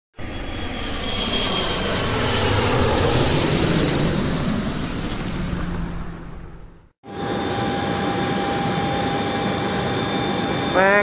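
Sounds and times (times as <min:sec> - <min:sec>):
jet engine rush: 0:00.2 - 0:11.0
faint high whine: 0:07.0 - 0:11.0.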